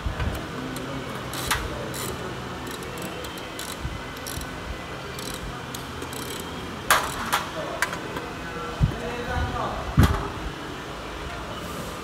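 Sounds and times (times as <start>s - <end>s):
ratchet wrench clicking: 0.8s - 7.3s.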